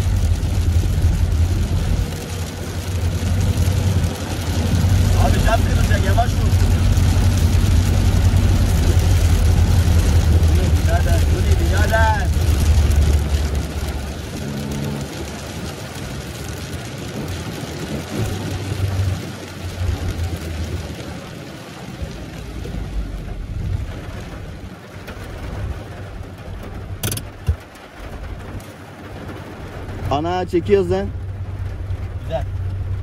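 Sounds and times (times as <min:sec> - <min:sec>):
car engine and road noise: 0:00.0 - 0:33.0
sharp click: 0:27.0 - 0:27.6.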